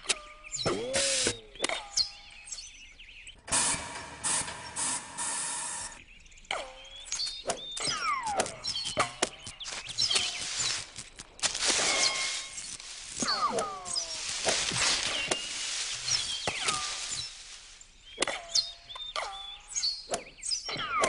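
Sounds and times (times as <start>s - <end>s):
hissing noise: 0.8s - 1.4s, 9.7s - 17.8s.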